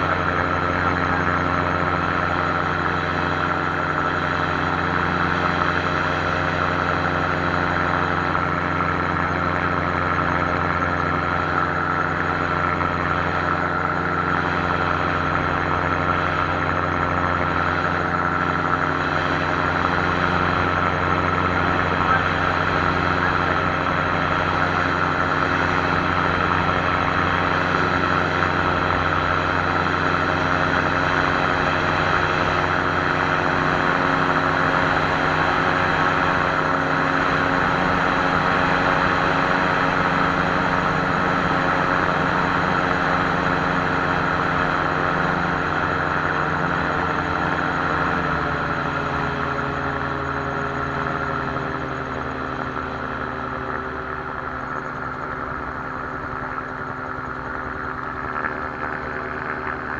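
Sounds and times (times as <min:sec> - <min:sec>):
aircraft engine and propeller drone: 0:00.0 - 0:59.9.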